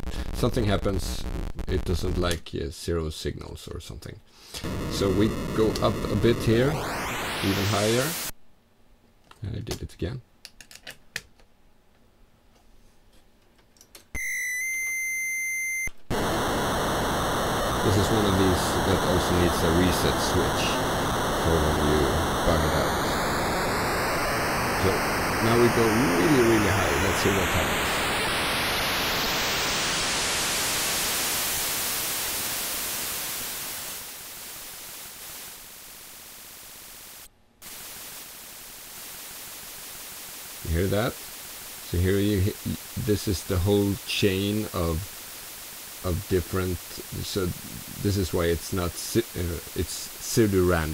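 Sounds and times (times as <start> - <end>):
dense digital hiss: 0.0 - 2.6, 4.5 - 8.4, 16.0 - 50.9
rising whine: 4.6 - 8.3, 16.1 - 38.2.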